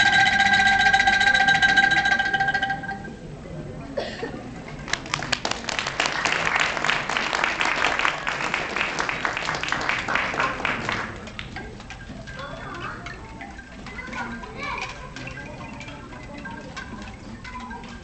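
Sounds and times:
audience applause: 0:04.9 - 0:11.2.

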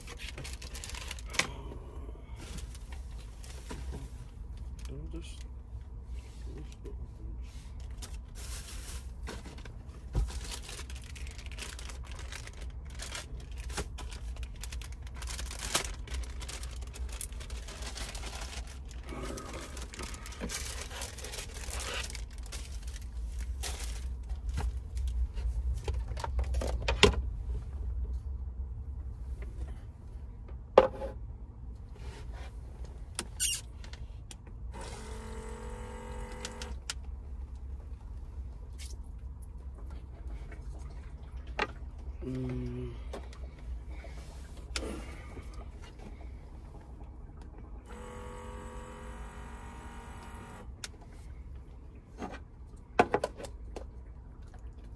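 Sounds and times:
low steady rumble: 0:00.0 - 0:54.9
rustling: 0:07.5 - 0:25.8.

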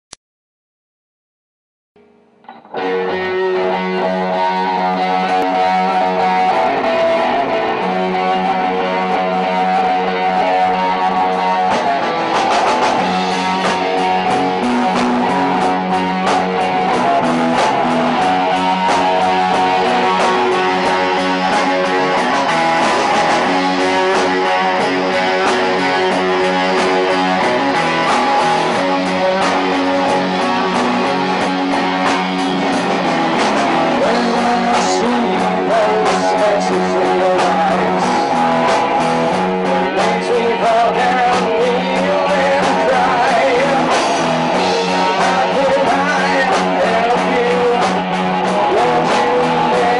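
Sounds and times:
electric guitar sustained notes: 0:02.0 - 0:49.9
rock band music: 0:02.0 - 0:49.9
drum hits: 0:11.6 - 0:36.6.

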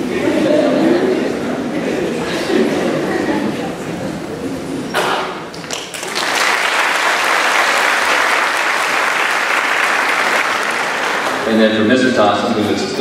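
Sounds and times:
audience clapping: 0:05.5 - 0:11.6.

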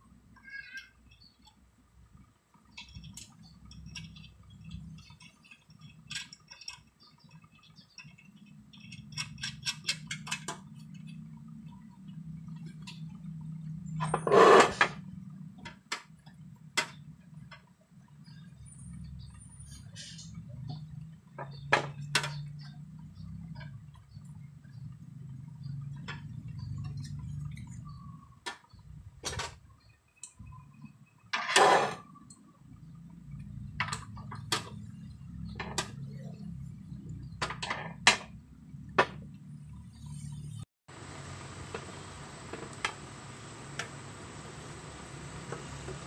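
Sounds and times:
metal clinks and knocks: 0:02.7 - 0:11.3
loud metal scrape or clunk: 0:14.0 - 0:15.0, 0:31.4 - 0:32.0.

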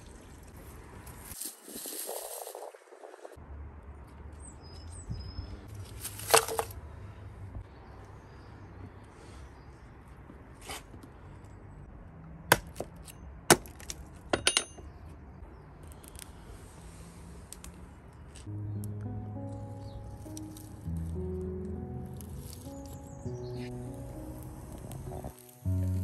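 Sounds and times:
hatchet chopping a log: 0:12.5 - 0:14.0.

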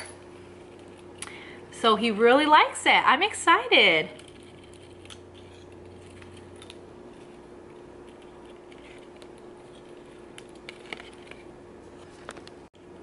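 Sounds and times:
faint steady hum: 0:00.0 - 0:13.0.

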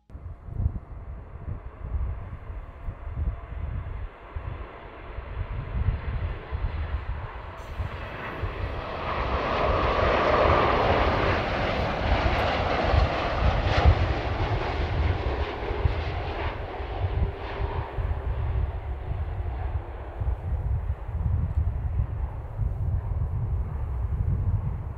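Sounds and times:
jet plane passing: 0:00.2 - 0:24.9.

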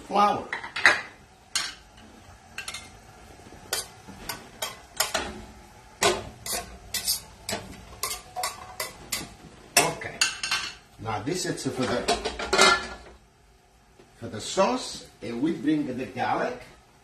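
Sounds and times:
metal tongs clinking on pan: 0:06.4 - 0:10.8.

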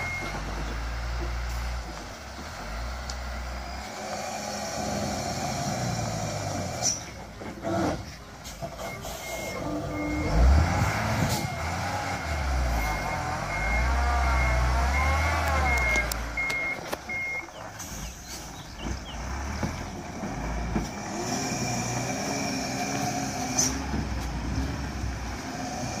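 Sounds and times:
diesel truck engine running: 0:00.0 - 0:26.0
reversing beeper: 0:08.8 - 0:18.1.

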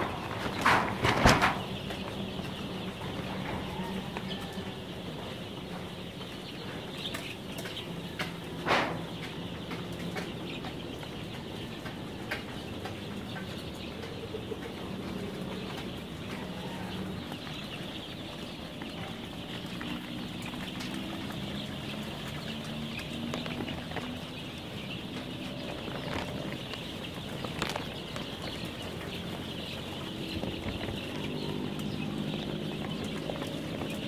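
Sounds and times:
chicks peeping: 0:00.0 - 0:34.0.

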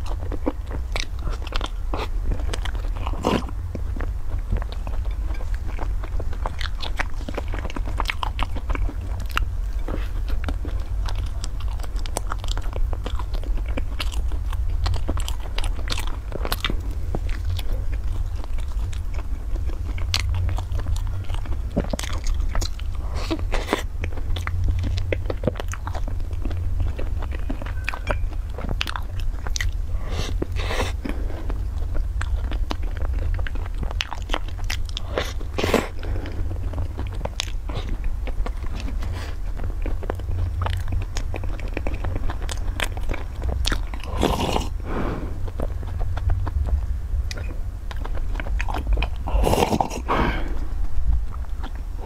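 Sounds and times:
low hum: 0:00.0 - 0:52.0
pastry crunching and chewing: 0:00.0 - 0:52.0
person drinking: 0:44.1 - 0:45.5, 0:49.2 - 0:50.8.

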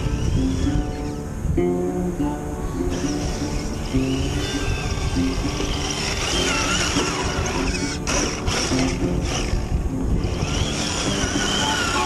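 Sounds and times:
electric motor whining: 0:00.0 - 0:01.4, 0:02.7 - 0:12.0
background music: 0:00.0 - 0:12.0.

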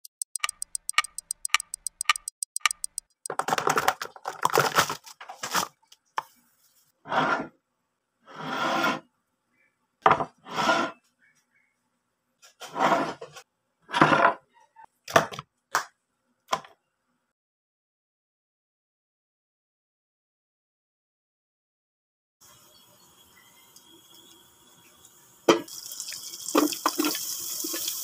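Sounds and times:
clock ticking: 0:00.0 - 0:03.7.

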